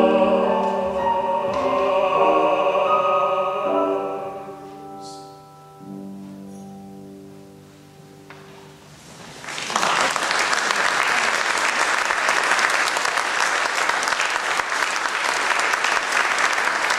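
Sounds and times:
piano chord ringing: 0.0s - 9.0s
audience applause: 9.3s - 16.9s.

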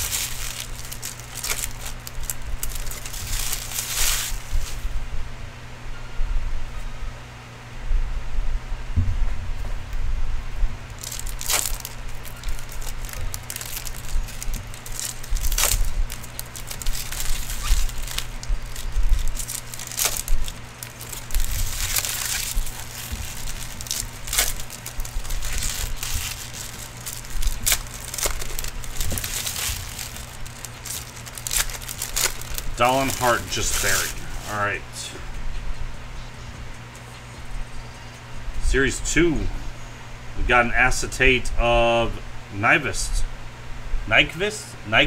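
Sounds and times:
cards being handled: 0.0s - 4.8s, 10.9s - 34.8s
wrappers crinkling and tearing: 0.0s - 4.9s, 10.9s - 34.8s
steady low hum: 0.0s - 45.0s.

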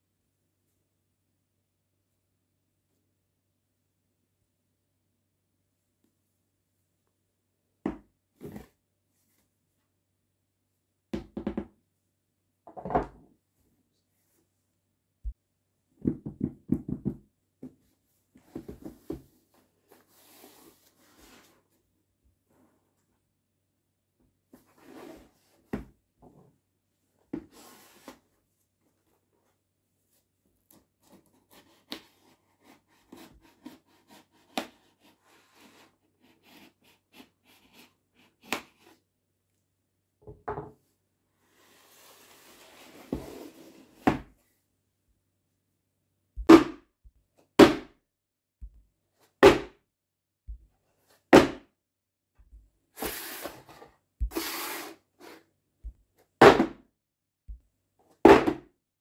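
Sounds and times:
knife cutting cardboard box: 31.0s - 37.8s.

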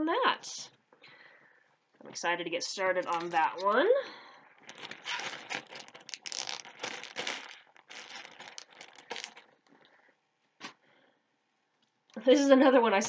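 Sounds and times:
plastic bag crinkling: 4.5s - 9.9s.

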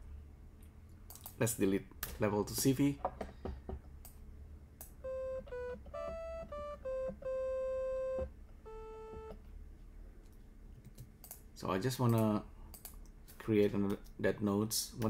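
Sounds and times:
synthesizer playing single notes: 5.0s - 9.3s.

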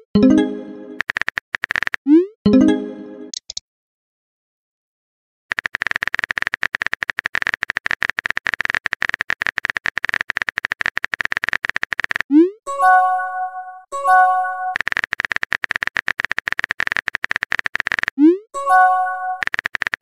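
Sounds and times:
chiming message tone: 0.0s - 1.0s, 2.5s - 3.3s, 12.7s - 14.8s, 18.6s - 19.4s
phone keyboard typing clicks: 1.0s - 2.1s, 5.5s - 12.3s, 14.7s - 18.2s, 19.4s - 20.0s.

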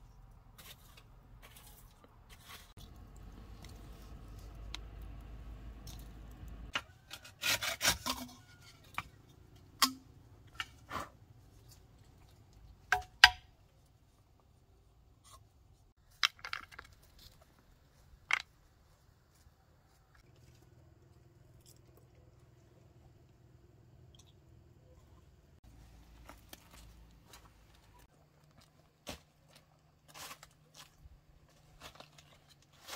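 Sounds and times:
low steady rumble: 2.8s - 6.7s
bamboo and sticks clicking: 2.8s - 11.0s, 12.2s - 13.6s, 18.2s - 18.5s.

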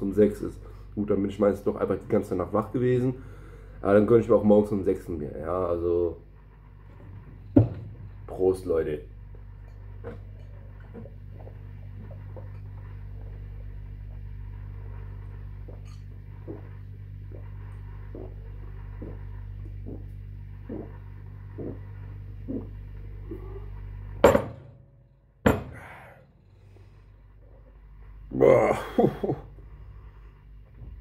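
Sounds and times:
steady low drone: 0.0s - 31.0s
person gulping beer: 9.8s - 23.8s, 28.3s - 29.7s
glass mug knocking on table: 24.2s - 24.7s.

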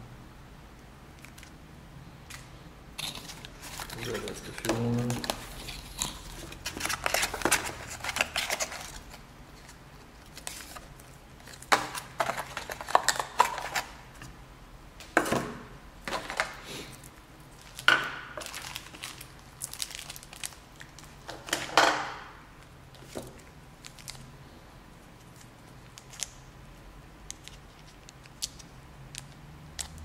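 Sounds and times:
cardboard and paper rustling: 3.0s - 13.9s
plastic bags crinkling: 3.0s - 14.0s, 17.5s - 21.7s, 23.0s - 24.3s.

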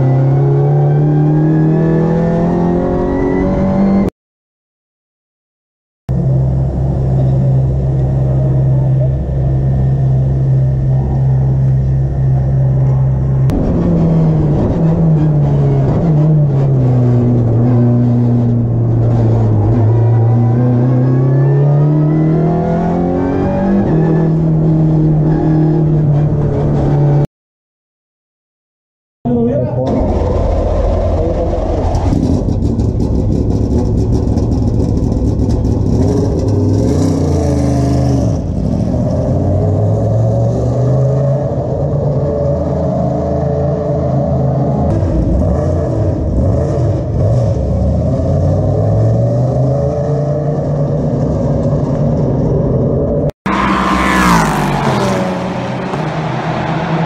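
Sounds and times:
race car engines revving: 6.1s - 27.2s, 29.8s - 57.0s
racing car passing at speed: 53.5s - 57.0s.

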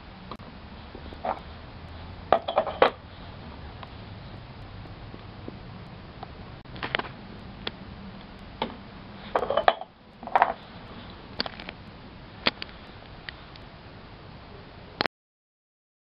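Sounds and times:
porcelain cups clinking: 9.3s - 10.6s.

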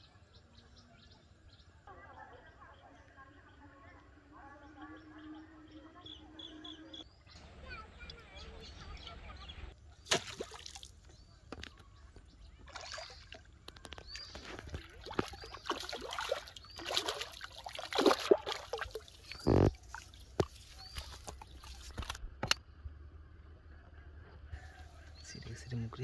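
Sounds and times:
fish splashing in water: 10.1s - 11.0s, 12.6s - 22.2s
water sloshing and dripping: 10.1s - 11.7s, 12.6s - 22.2s.

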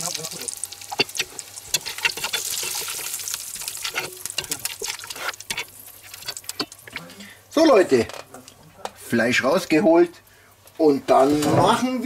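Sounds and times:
hot fat sizzling and crackling: 0.0s - 12.0s
utensil scraping a pot: 0.9s - 7.0s.

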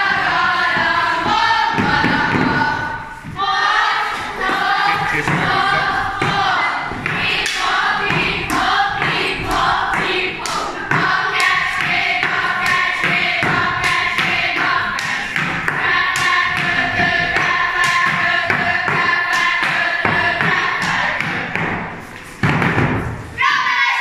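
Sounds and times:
girls singing together: 0.0s - 24.0s.

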